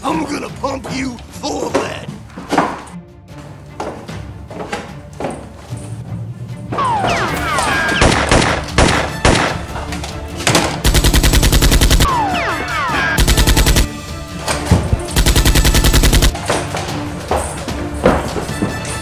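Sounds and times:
machine-gun fire: 8.0s - 9.6s, 10.8s - 13.9s, 15.1s - 16.4s.

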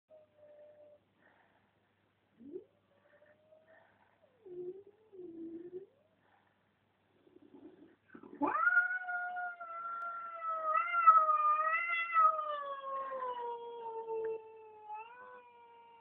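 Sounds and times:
cat yowling: 8.4s - 16.0s.

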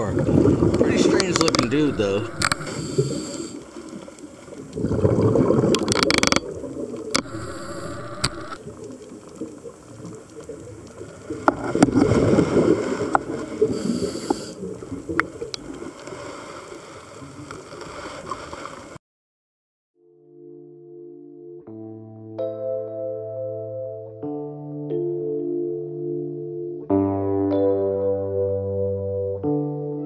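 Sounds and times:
exhaled bubbles rushing: 0.0s - 14.0s
sharp clicks: 0.7s - 3.5s, 5.7s - 6.5s, 7.1s - 8.6s
scuba diver breathing underwater: 1.4s - 4.0s, 7.2s - 8.6s, 12.1s - 15.1s.

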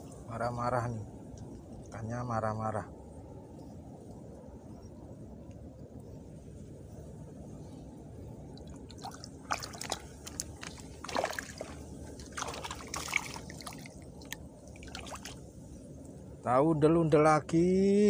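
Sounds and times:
steady low rumble: 0.0s - 18.0s
small water splashes and drips: 8.6s - 15.5s.

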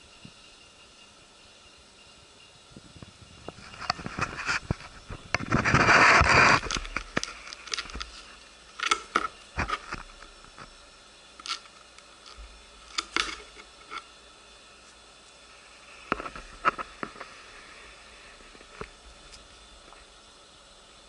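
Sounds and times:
microphone handling rustle: 2.8s - 8.3s.

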